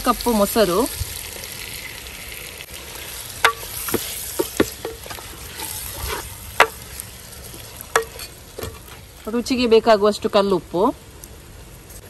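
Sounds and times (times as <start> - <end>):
ladle knocking clay pot: 3.4 - 5.4, 6.6 - 6.8, 8.0 - 8.9.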